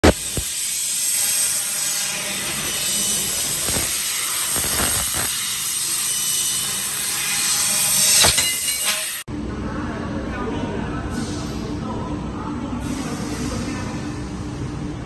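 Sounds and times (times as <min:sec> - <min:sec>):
laser cutter hissing: 0:00.0 - 0:09.2.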